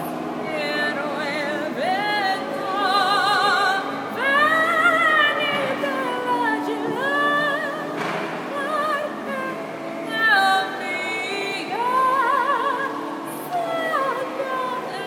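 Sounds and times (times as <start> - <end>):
woman singing with vibrato: 0.0 - 15.0.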